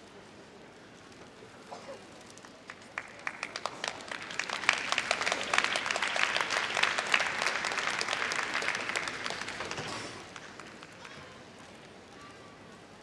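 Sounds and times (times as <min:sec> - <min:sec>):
audience applauding: 0:02.4 - 0:11.1.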